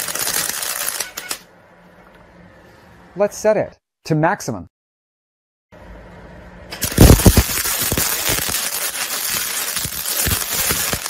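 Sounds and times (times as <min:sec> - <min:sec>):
welding arc crackling: 0:00.0 - 0:01.4, 0:06.7 - 0:11.0
welding arc pops: 0:06.7 - 0:11.0.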